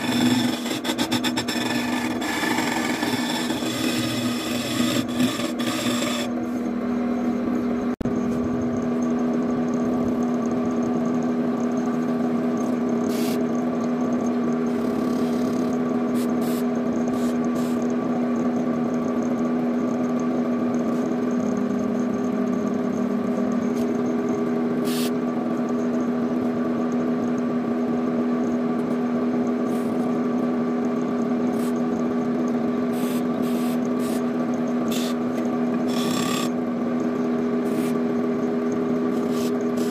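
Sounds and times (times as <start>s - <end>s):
wood lathe motor humming: 0.0s - 6.4s, 34.9s - 36.7s.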